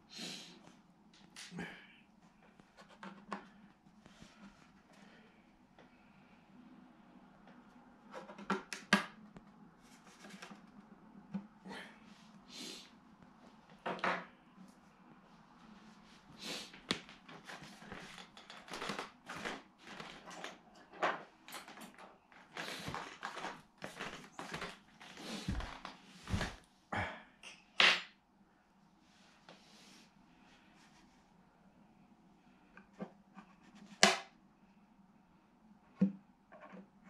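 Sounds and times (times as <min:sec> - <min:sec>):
footsteps: 0:22.4 - 0:26.6.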